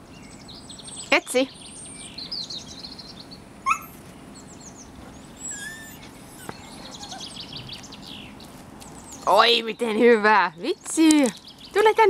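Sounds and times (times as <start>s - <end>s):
small birds chirping: 0.0s - 12.0s
dog yipping: 3.6s - 4.1s, 5.2s - 7.4s.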